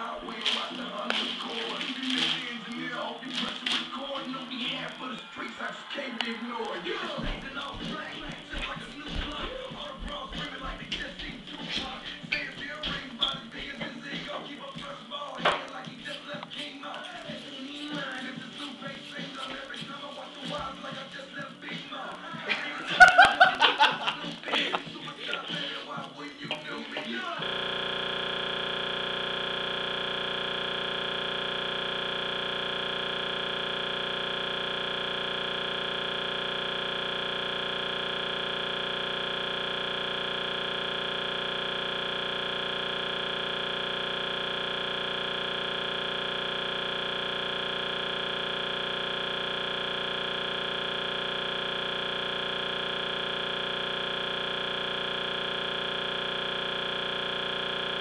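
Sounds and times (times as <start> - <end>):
looping electronic buzz: 27.3 - 58.0.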